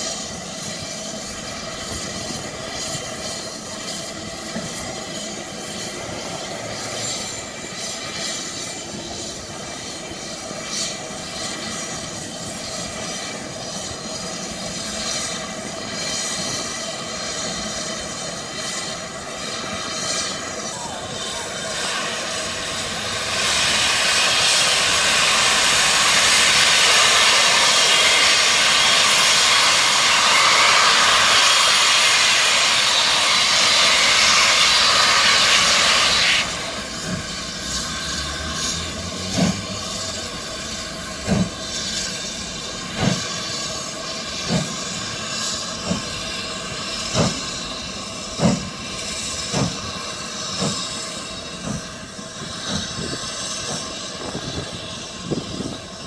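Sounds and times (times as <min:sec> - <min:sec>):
steam locomotive exhaust chuffs: 0:00.0 - 0:56.0
steam locomotive hissing steam: 0:00.0 - 0:56.0.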